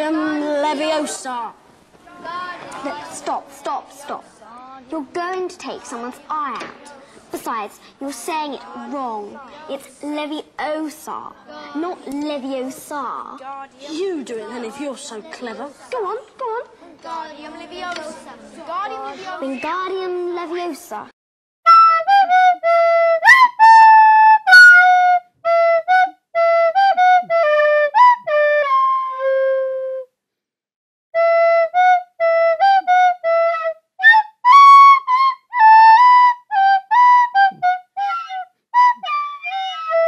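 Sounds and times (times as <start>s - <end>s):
flute-like wind instrument melody: 21.7s - 30.2s, 31.2s - 40.0s.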